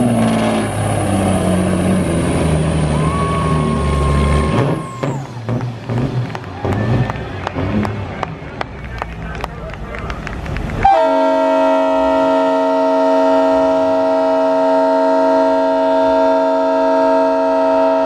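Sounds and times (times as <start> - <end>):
truck air horn chord: 10.8 - 18.0.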